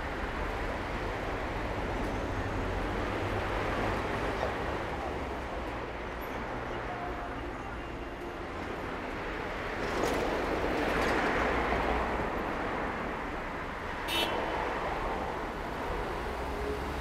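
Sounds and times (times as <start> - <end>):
cars passing: 10.6 - 17.0.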